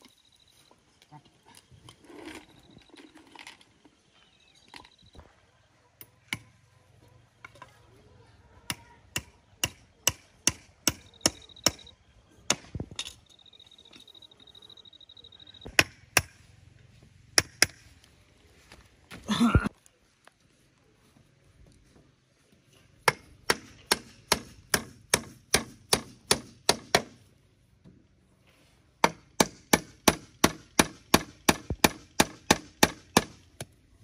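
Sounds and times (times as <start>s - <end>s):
tool striking wood: 17.4s - 17.8s, 23.0s - 27.2s, 29.0s - 33.4s.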